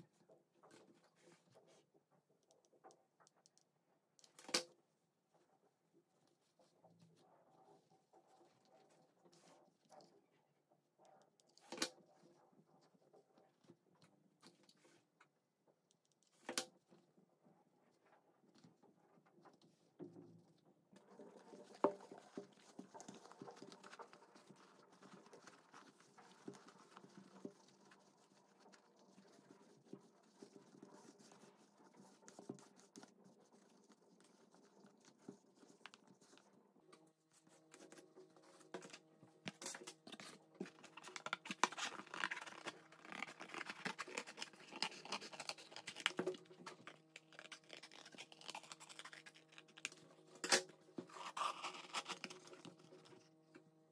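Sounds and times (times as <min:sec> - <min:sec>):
scissors cutting cardboard: 0:37.6 - 0:53.2.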